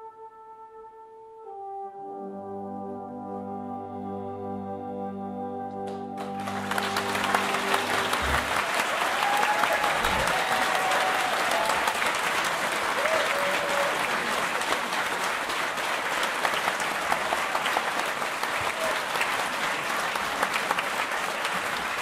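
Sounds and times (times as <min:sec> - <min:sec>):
brass band chord: 0:00.0 - 0:08.8
audience applauding: 0:06.2 - 0:22.0
people cheering: 0:06.2 - 0:22.0.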